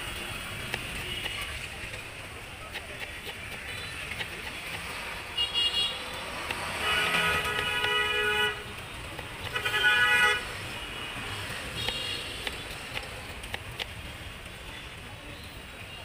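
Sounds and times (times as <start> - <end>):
vehicle horn toots: 6.8 - 8.7, 9.5 - 10.5.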